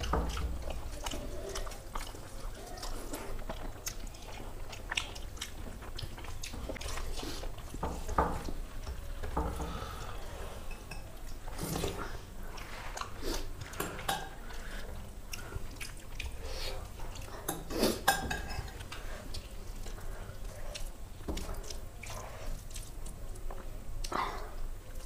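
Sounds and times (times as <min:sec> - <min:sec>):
chewing and mouth noises: 0:00.0 - 0:25.0.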